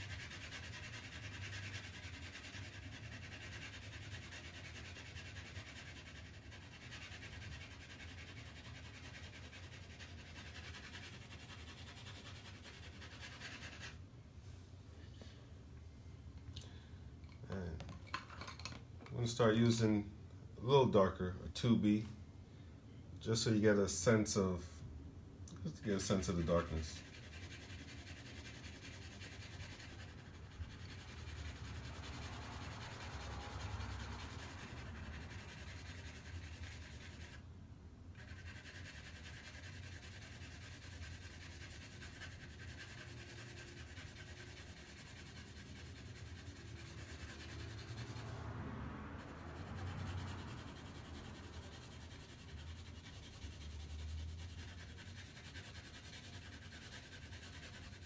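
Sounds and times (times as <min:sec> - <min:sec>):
pencil shading on paper: 0:00.0 - 0:14.0, 0:26.0 - 0:37.4, 0:38.2 - 0:58.0.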